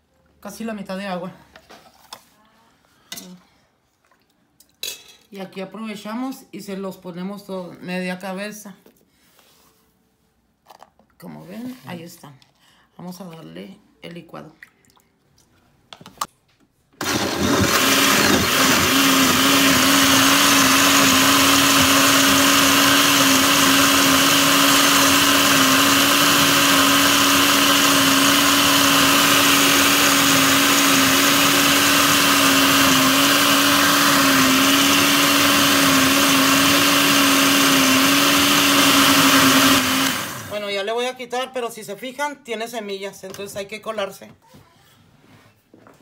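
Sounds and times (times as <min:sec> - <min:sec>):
blender motor humming: 0:17.0 - 0:40.7.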